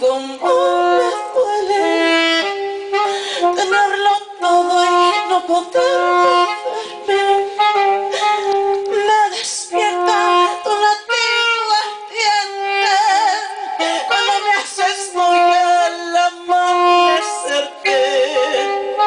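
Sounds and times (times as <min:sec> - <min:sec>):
woman singing into a microphone: 0:00.0 - 0:19.0.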